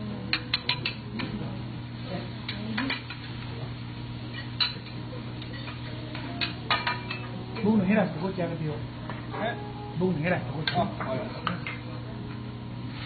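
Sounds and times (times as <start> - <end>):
steady low hum: 0.0 - 13.0
metal spatula tapping on griddle: 0.3 - 1.3.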